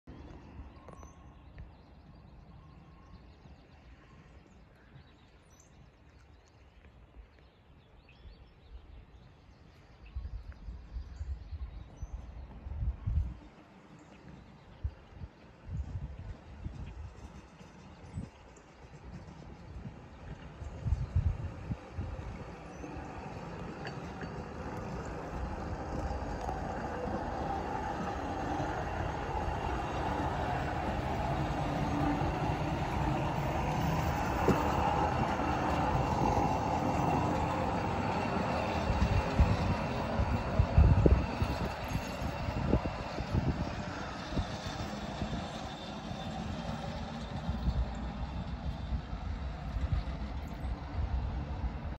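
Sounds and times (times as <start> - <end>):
truck rolling on rails: 16.5 - 51.9.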